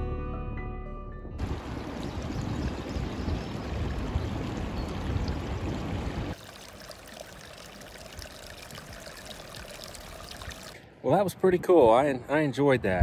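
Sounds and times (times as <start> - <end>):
stream trickling over roots: 1.4 - 10.8.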